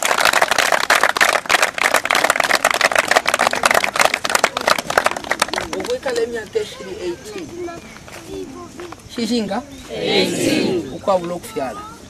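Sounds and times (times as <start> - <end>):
crowd clapping: 0.0 - 6.6.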